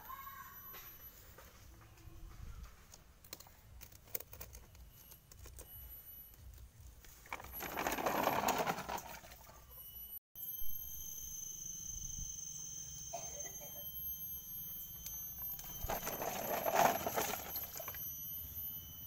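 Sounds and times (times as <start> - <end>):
plastic toy truck wheels clicking: 7.3 - 9.1.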